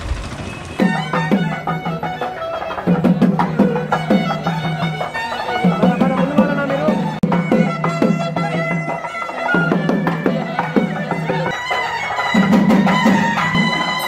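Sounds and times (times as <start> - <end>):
steady drone: 0.0 - 1.8
drum strokes: 0.0 - 6.2.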